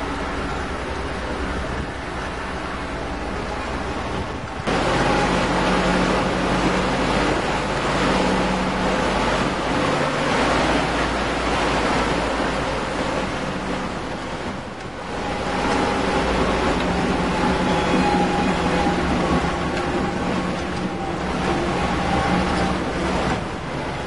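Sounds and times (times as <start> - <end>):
vehicle engine running: 4.5 - 17.9.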